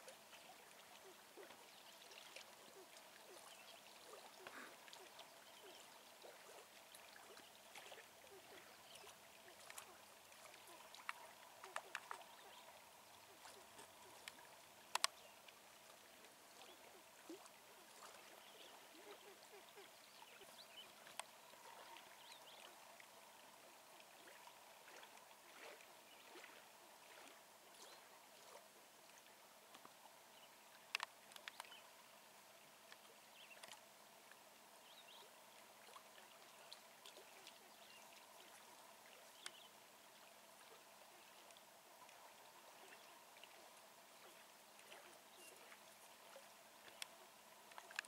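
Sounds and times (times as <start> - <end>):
light ticks: 11.0 - 12.3, 13.8 - 15.2, 21.0 - 21.4, 29.7 - 30.0, 30.8 - 31.8, 39.4 - 39.6, 46.8 - 48.0.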